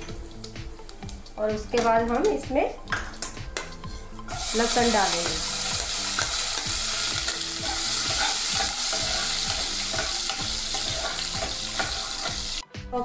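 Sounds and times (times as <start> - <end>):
garlic sizzling in hot oil: 3.9 - 12.6
ladle stirring in a pot: 5.2 - 12.5.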